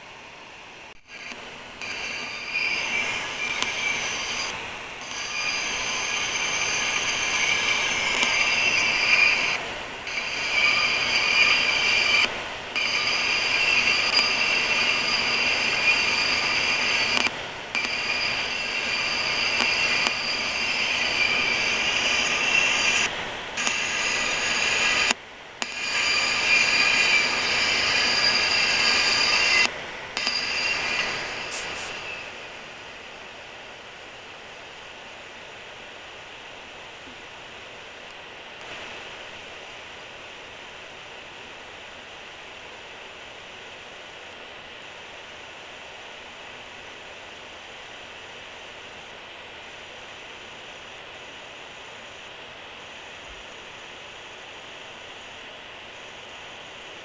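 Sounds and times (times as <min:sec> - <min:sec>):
train wheels squealing: 0:01.0 - 0:32.4.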